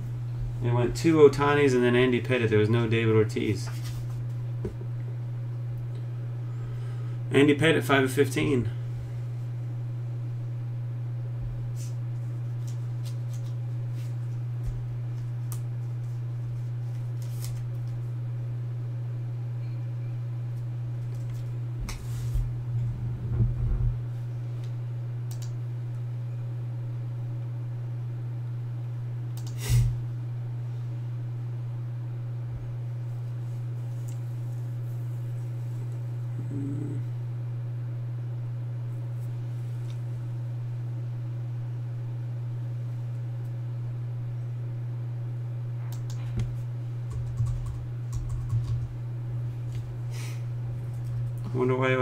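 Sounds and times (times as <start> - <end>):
low electrical hum: 0.0 - 52.0
faint clicks: 25.3 - 25.5.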